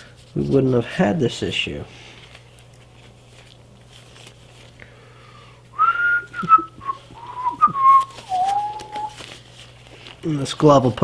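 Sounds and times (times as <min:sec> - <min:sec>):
cloth glove rustling: 0:02.0 - 0:04.8, 0:06.4 - 0:11.0
person whistling a tune: 0:05.8 - 0:09.2.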